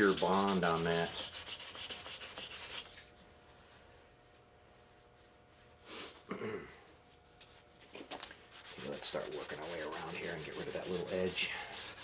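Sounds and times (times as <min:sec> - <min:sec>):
sandpaper rubbing on plastic: 0:00.0 - 0:03.0, 0:08.5 - 0:12.0.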